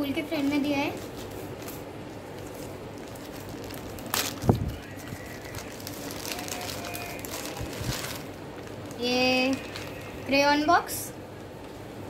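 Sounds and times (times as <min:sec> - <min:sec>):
wrapping paper crinkling and tearing: 0:00.4 - 0:10.6
sharp crackle: 0:01.6 - 0:10.3.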